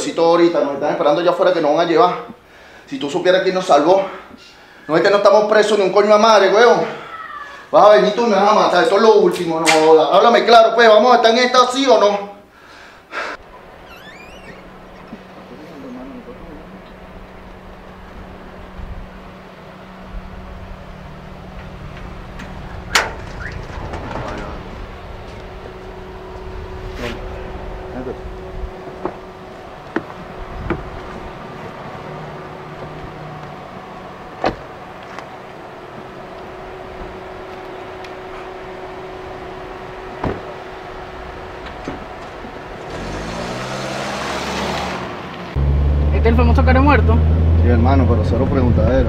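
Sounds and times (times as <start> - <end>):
faint hum: 12.3 - 42.7
low outdoor rumble: 12.6 - 42.9, 45.1 - 49.0
car engine pulling away: 13.4 - 49.0
car door thump: 34.4 - 34.7, 40.2 - 40.6.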